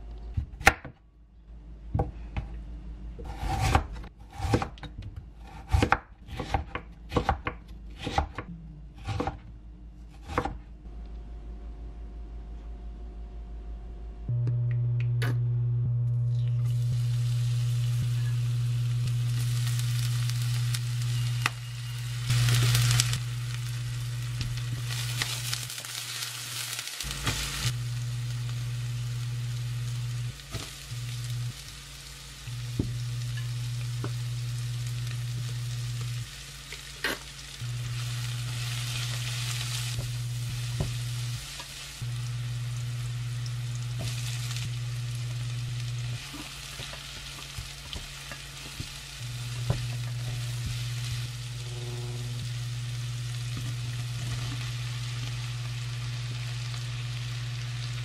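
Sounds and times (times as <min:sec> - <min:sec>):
low hum of cooktop: 0:00.0 - 0:58.0
vegetables sizzling in a frying pan: 0:16.6 - 0:58.0.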